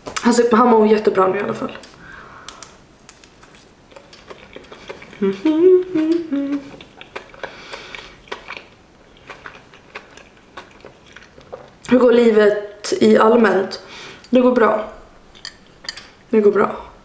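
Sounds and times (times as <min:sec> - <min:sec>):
chewing cracker crunching: 0:01.8 - 0:11.9
woman humming with mouth full: 0:05.2 - 0:06.8.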